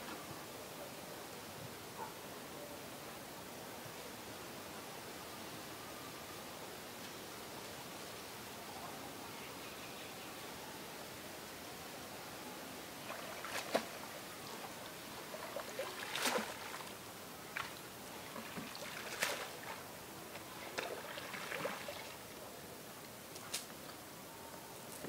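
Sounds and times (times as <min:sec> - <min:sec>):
fishing net hauled from water: 0:13.0 - 0:22.2
pond water splashing: 0:13.0 - 0:22.4.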